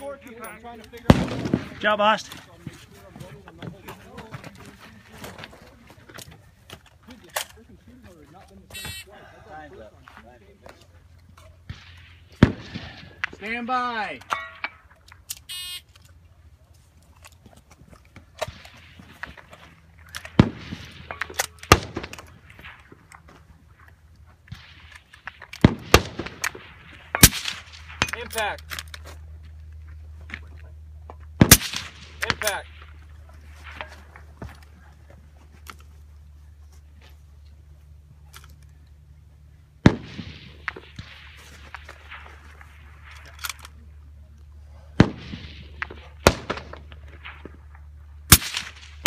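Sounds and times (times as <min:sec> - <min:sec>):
steady low hum: 0:00.0 - 0:49.0
gunshots: 0:01.0 - 0:02.2, 0:11.6 - 0:13.7, 0:20.3 - 0:22.8, 0:24.5 - 0:28.5, 0:31.4 - 0:32.9, 0:39.8 - 0:43.2, 0:45.0 - 0:47.6, 0:48.3 - 0:49.0
scuffing on dirt: 0:02.2 - 0:07.1, 0:33.2 - 0:38.3.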